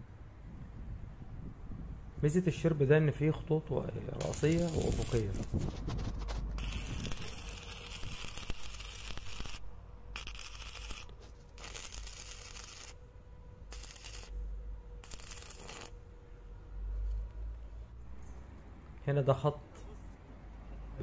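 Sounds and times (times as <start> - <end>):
arc welding crackling hiss: 4.2 - 5.5, 6.6 - 9.6, 10.2 - 13.0, 13.7 - 14.4, 15.0 - 15.9.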